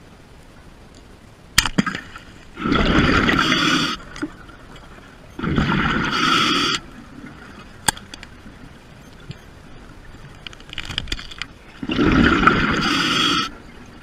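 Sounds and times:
underwater bursts of water noise: 1.8s - 4.2s, 5.4s - 7.4s, 11.8s - 13.7s.

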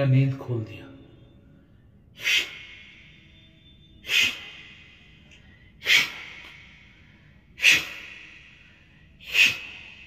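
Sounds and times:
metallic ringing tone: 2.8s - 4.0s.

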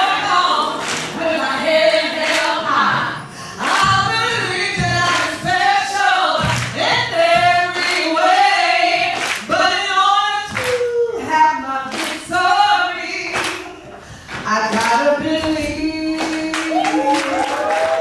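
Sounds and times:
group of voices singing: 0.0s - 18.0s
woman singing into microphone: 0.0s - 18.0s
hand claps: 0.8s - 1.2s, 6.4s - 6.8s, 9.1s - 9.5s, 10.5s - 10.9s, 11.9s - 12.2s, 13.4s - 13.6s.

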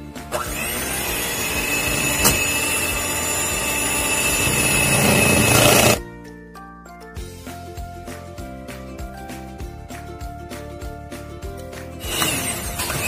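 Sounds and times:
background music: 0.0s - 13.0s
electric hand mixer whine: 0.3s - 6.0s, 12.0s - 13.0s.

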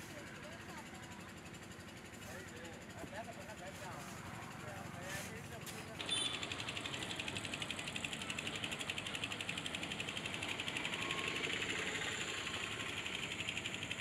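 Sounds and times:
rapid mechanical ticking: 5.4s - 14.0s.

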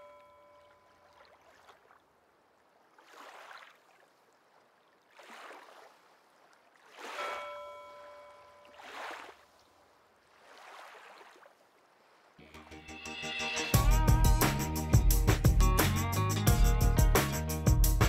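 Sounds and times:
small waves lapping: 0.0s - 12.4s.

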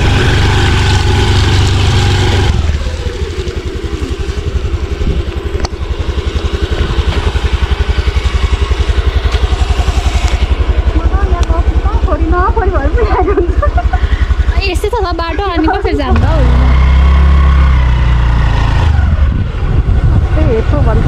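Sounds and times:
scooter engine idling: 0.0s - 21.0s.

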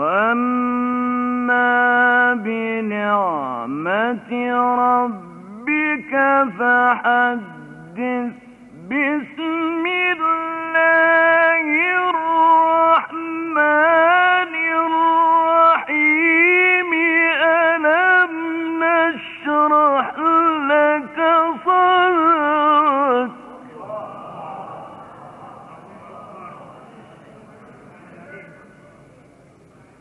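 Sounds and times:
man chanting melodically: 0.0s - 27.2s.

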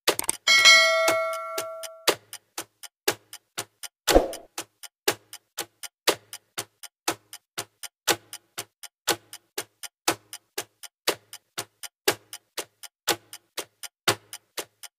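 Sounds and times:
sparse percussion beat: 0.3s - 2.1s.

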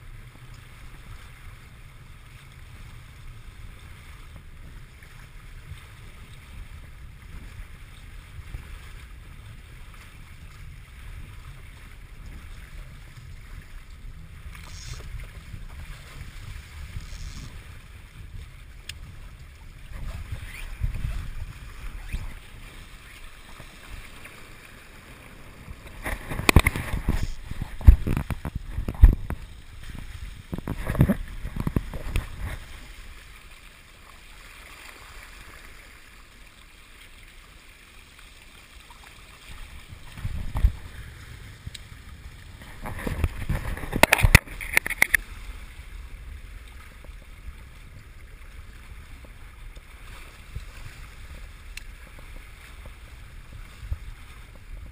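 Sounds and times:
water splashing along hull: 0.0s - 54.9s.

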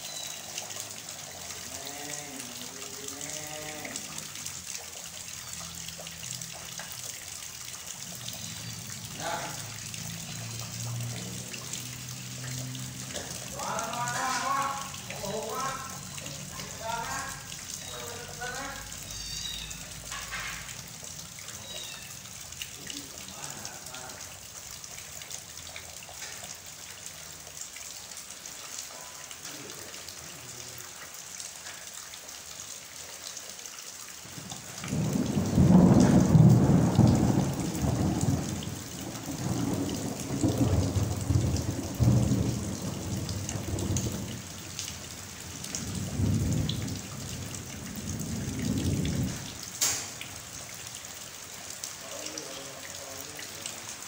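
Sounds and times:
heavy rain falling: 0.0s - 54.0s
rolling thunder rumble: 34.8s - 44.6s, 45.7s - 49.6s.

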